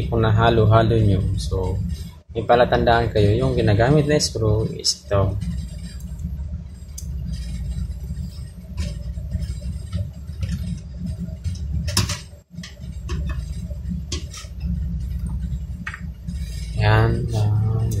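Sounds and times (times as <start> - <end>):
steady low rumble: 0.0 - 18.0.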